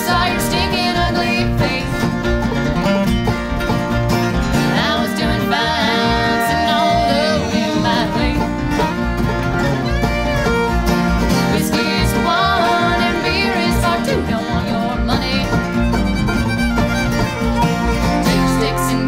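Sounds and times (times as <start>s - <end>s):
person singing: 0.0s - 2.2s, 4.6s - 8.6s, 11.4s - 15.7s, 18.1s - 19.0s
country music with plucked strings: 0.0s - 19.0s.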